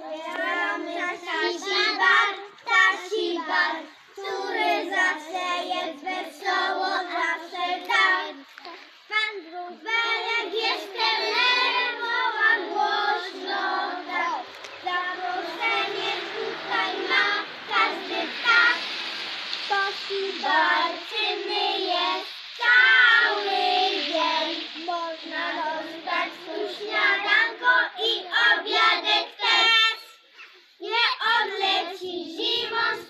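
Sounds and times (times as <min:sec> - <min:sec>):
young children singing: 0:00.0 - 0:30.2, 0:30.8 - 0:33.0.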